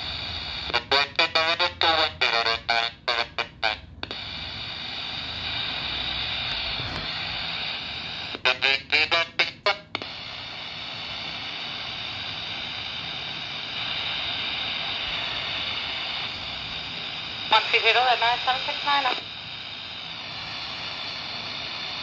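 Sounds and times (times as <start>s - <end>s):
radio static hiss: 0.0s - 22.0s
broken radio voice transmission: 0.6s - 3.8s, 8.2s - 9.8s, 17.4s - 19.3s.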